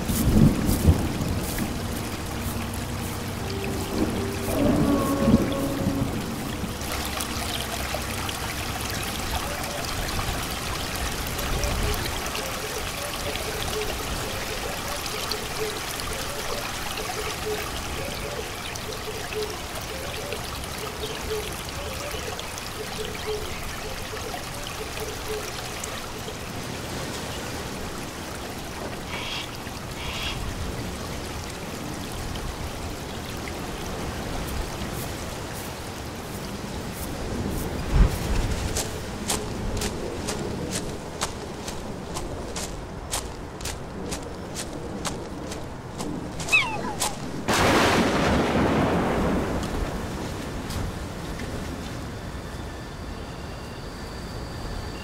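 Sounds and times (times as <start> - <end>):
heavy rain on foliage: 0.0 - 53.2
faint short repeated calls: 29.1 - 30.4, 46.4 - 47.3.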